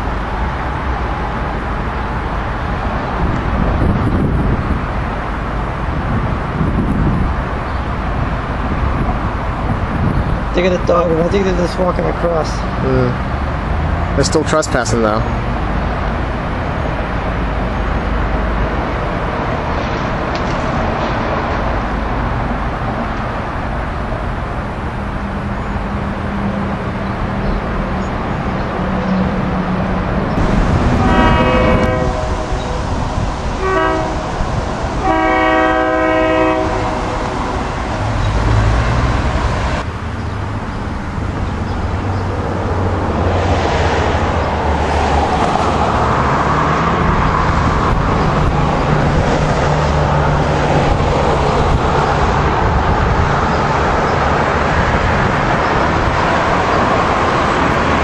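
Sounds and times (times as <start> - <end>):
steady low rumble: 15.4 - 33.6
train air horn blasts: 30.7 - 33.0, 33.6 - 38.0.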